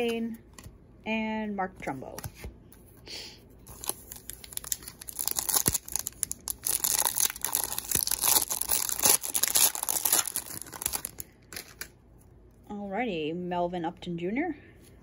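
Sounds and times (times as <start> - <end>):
foil wrapper crinkling and tearing: 3.7 - 12.0.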